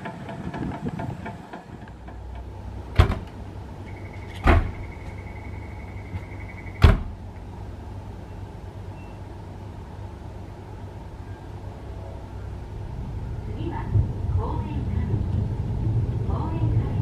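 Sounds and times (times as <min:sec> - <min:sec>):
cable car doors clunking: 0:00.0 - 0:07.6
low steady hum: 0:00.0 - 0:17.0.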